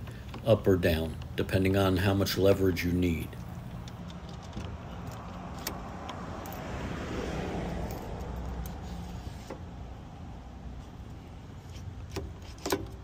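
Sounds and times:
sharp metallic clicks: 3.3 - 6.7
metal tube scraping in sleeve: 8.6 - 9.7.

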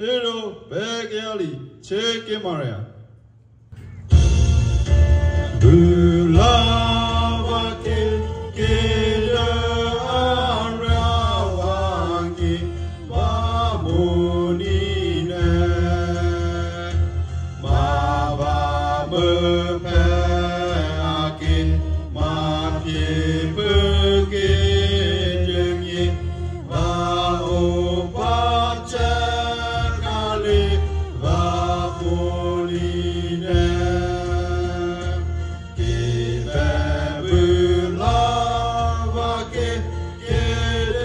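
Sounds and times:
steady low bass: 3.8 - 41.0.

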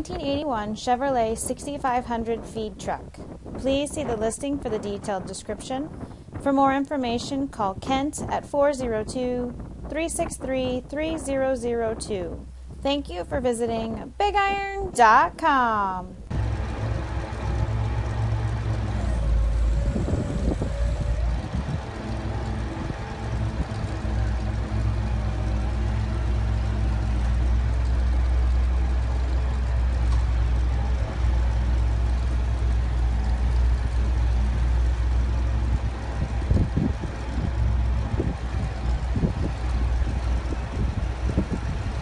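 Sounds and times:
truck engine idling: 16.1 - 42.0
hydraulic auger boom moving: 16.3 - 42.0.

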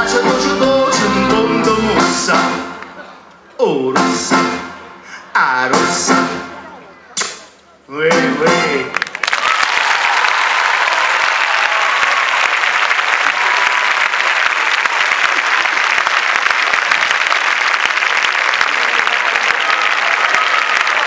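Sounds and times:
audience applauding: 8.9 - 21.0.

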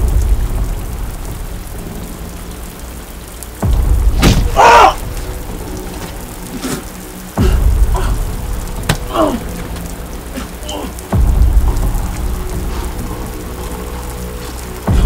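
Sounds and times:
steady rain: 0.0 - 15.0
deep thunder-like booms: 3.6 - 6.3, 11.1 - 13.8.

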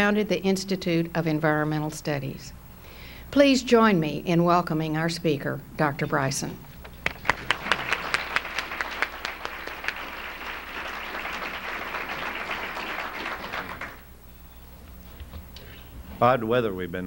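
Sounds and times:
audience applauding: 6.9 - 14.1.

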